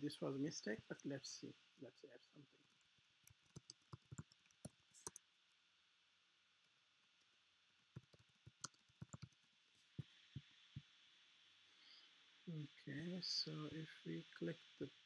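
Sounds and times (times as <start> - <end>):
typing on computer keyboard: 3.3 - 5.2, 8.0 - 9.4.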